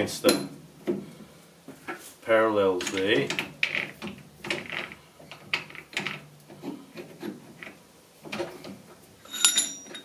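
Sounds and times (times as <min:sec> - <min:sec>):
sharp ringing metallic clink: 0:09.2 - 0:10.0.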